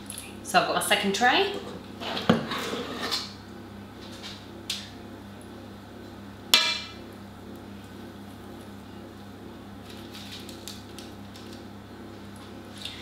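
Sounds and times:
dough scraping in bowl: 0:01.5 - 0:03.3.

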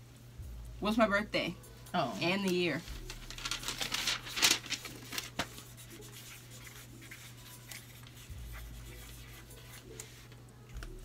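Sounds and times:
paper rustle: 0:02.4 - 0:11.0
pens scratching on paper: 0:04.8 - 0:11.0.

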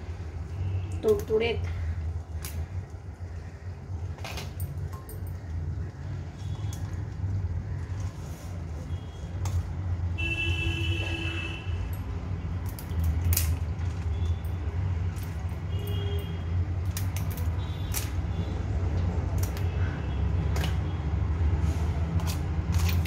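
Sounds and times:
scissors snipping crab shell: 0:12.6 - 0:13.8, 0:16.8 - 0:18.3, 0:19.2 - 0:19.8, 0:22.1 - 0:23.0.

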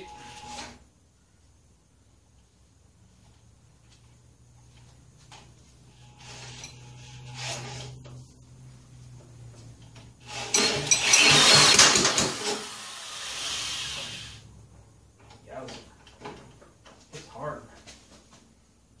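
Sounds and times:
drill spinning engine: 0:10.2 - 0:14.4.

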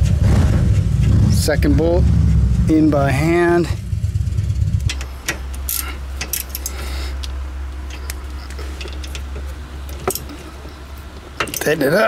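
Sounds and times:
steady low hum: 0:00.0 - 0:12.0
metallic clicks and clinks: 0:04.8 - 0:11.8
tools being handled: 0:04.8 - 0:11.8.

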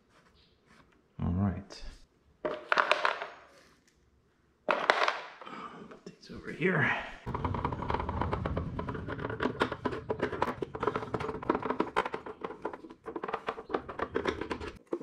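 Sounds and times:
low rumble: 0:07.3 - 0:11.5
hand tools tapping plastic: 0:08.3 - 0:15.0.

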